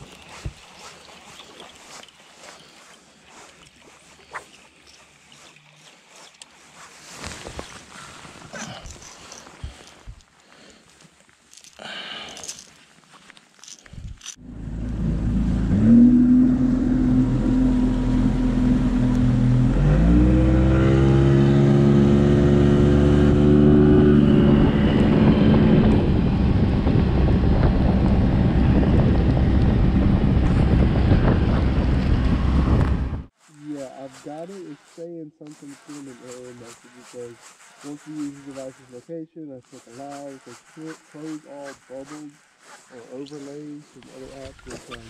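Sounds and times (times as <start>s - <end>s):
outboard motor running: 14.4s - 33.3s
wind and water rush: 22.4s - 33.3s.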